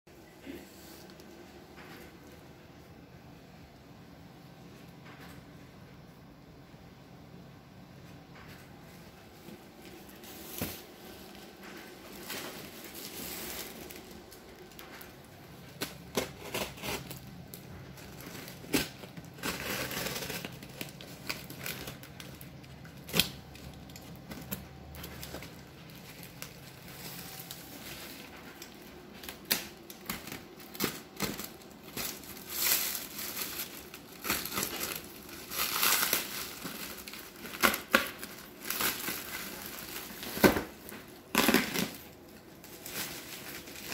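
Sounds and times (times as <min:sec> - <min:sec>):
plastic wrapping crinkling and tearing: 0:09.4 - 0:43.9.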